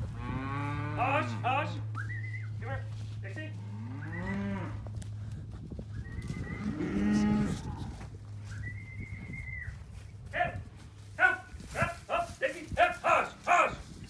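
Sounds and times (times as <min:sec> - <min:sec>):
cattle mooing: 0:00.0 - 0:01.9, 0:03.5 - 0:04.9, 0:06.2 - 0:08.0.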